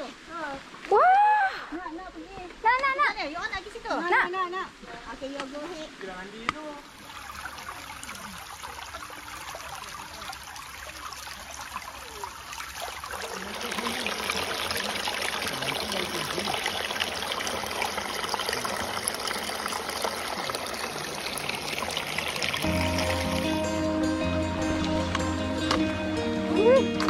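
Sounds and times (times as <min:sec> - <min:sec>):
stream splashing over stones: 0:06.1 - 0:23.6.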